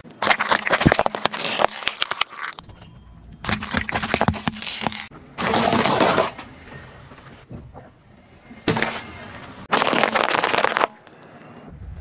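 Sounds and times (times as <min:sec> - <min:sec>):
loud gritty crunching: 0:00.0 - 0:02.6, 0:09.7 - 0:11.2
plastic capsules cracking under tyre: 0:09.7 - 0:11.3.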